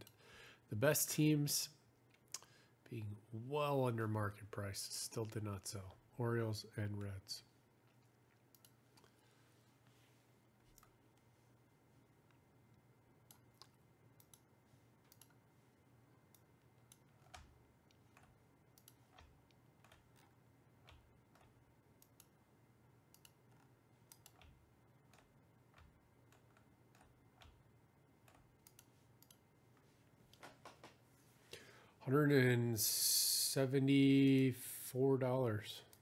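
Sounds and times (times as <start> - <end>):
faint low hum: 0.0 - 36.0
faint clicks: 7.9 - 9.2, 15.1 - 15.4, 28.3 - 29.4.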